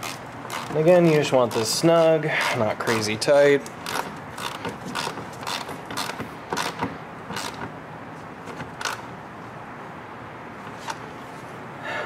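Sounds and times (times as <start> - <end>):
ratchet clicking: 0.0 - 1.8, 2.4 - 7.7, 8.6 - 9.1.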